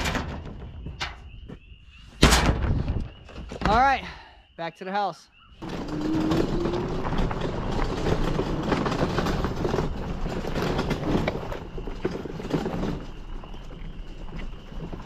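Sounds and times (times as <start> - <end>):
vehicle body rattling and knocking: 5.6 - 15.0.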